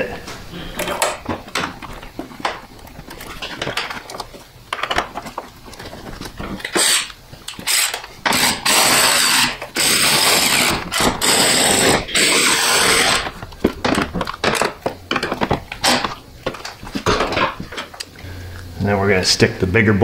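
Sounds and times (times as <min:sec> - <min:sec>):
electric ratchet running: 0:06.6 - 0:13.4.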